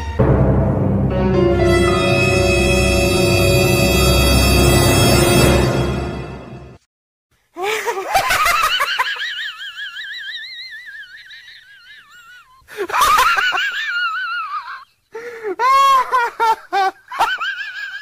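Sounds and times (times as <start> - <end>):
man laughing in high voice: 7.6 - 18.0.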